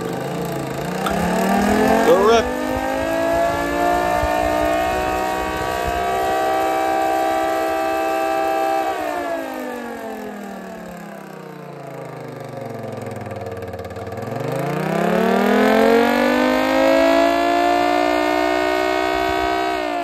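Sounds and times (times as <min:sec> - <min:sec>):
two-tone siren wailing: 0:00.0 - 0:10.0, 0:15.1 - 0:20.0.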